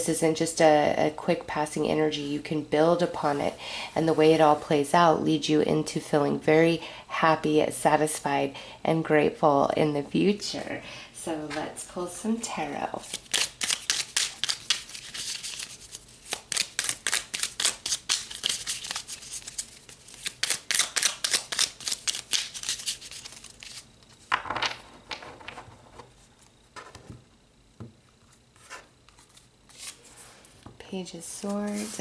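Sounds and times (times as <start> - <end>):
cards being shuffled: 13.0 - 24.8, 28.3 - 30.1, 31.4 - 32.0.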